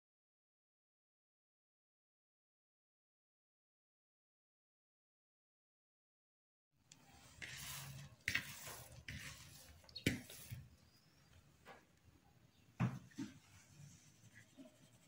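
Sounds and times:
dough squishing in a bowl: 0:07.1 - 0:11.0.

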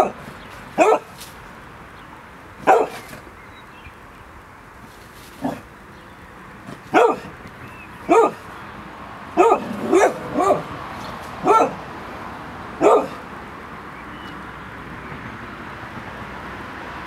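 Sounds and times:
dog barking: 0:00.8 - 0:01.2, 0:02.6 - 0:03.2, 0:05.4 - 0:05.7, 0:06.8 - 0:07.4, 0:08.0 - 0:08.5, 0:09.4 - 0:10.8, 0:11.4 - 0:11.9, 0:12.8 - 0:13.3.

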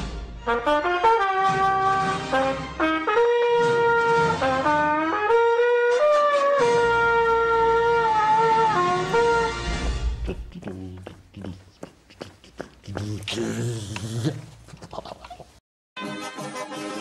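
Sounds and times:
horn-like sliding melody: 0:00.5 - 0:09.8.

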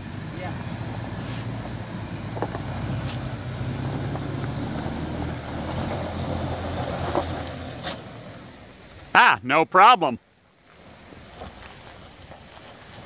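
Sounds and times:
car engine running at low speed: 0:00.0 - 0:09.1.

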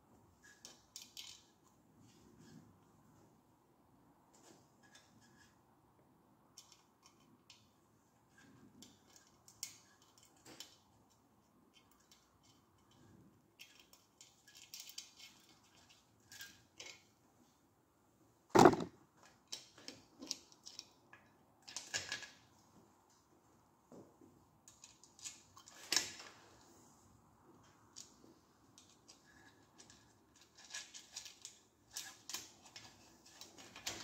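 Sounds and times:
metal parts clicking and rattling: 0:00.4 - 0:01.6, 0:08.3 - 0:10.9, 0:13.6 - 0:17.1, 0:21.7 - 0:22.4, 0:28.8 - 0:34.0
sharp knock: 0:18.6 - 0:18.9.

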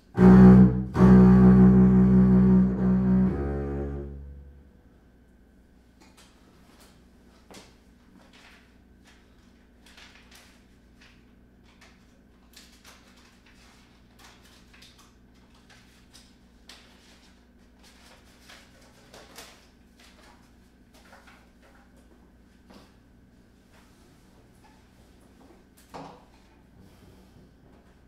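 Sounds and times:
low hum: 0:00.0 - 0:05.3
sheet music rustling: 0:00.2 - 0:04.5.

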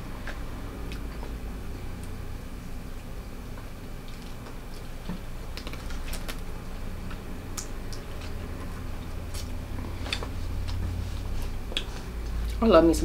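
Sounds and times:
crab shells cracking: 0:05.5 - 0:06.5.

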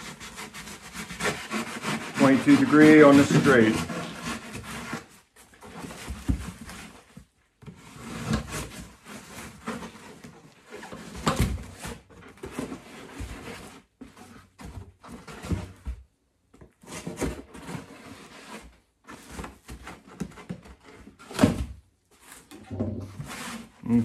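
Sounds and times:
knife scraping through duct board: 0:00.0 - 0:07.0, 0:07.6 - 0:13.9, 0:22.3 - 0:23.9.

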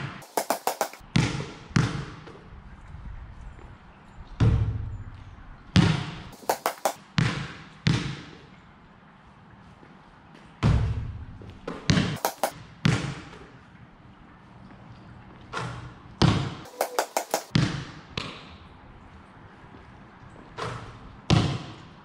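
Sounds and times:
basketball bouncing on concrete: 0:00.0 - 0:02.4, 0:05.8 - 0:08.4, 0:10.6 - 0:13.5, 0:16.2 - 0:18.5, 0:20.8 - 0:21.9
basketball hitting hoop: 0:00.4 - 0:02.2, 0:05.8 - 0:08.4, 0:11.7 - 0:13.3, 0:20.6 - 0:21.8.

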